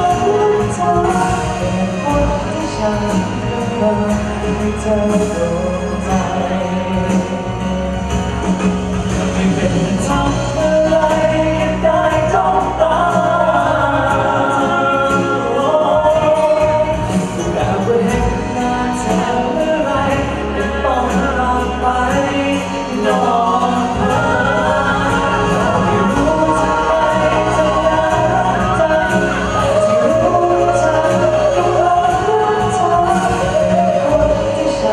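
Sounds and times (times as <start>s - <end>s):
man singing into microphone: 0.0s - 8.1s, 9.1s - 34.9s
backing music: 0.0s - 34.9s.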